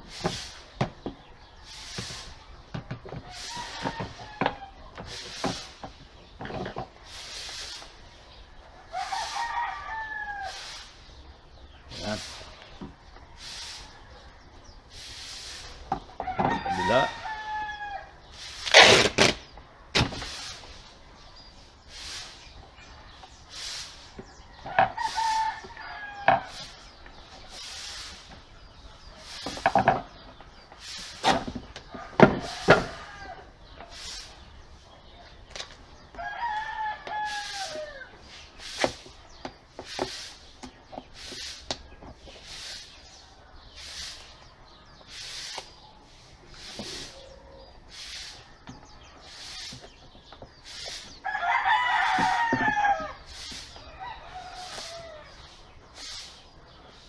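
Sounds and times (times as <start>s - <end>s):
rooster crowing: 3.3s - 4.8s, 8.9s - 10.8s, 16.2s - 18.2s, 24.6s - 26.6s, 32.0s - 33.5s, 36.2s - 38.2s, 51.2s - 53.2s, 53.8s - 55.4s.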